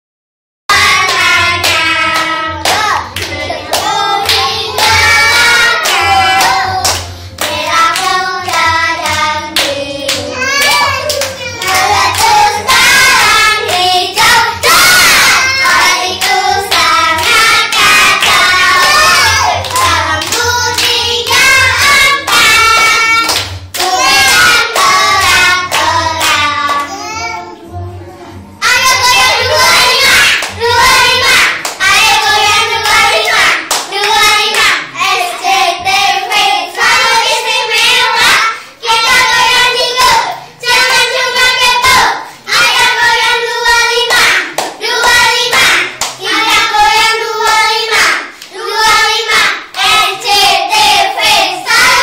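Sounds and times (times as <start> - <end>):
children singing: 0.7 - 28.0, 28.6 - 52.0
children clapping hands: 0.8 - 27.0, 29.1 - 32.0, 32.6 - 34.9, 44.0 - 50.4.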